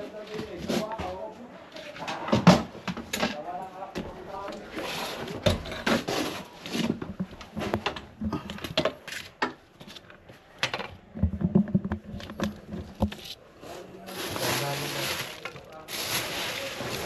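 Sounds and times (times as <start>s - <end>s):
wood and clutter knocking and scraping: 0.0s - 13.4s.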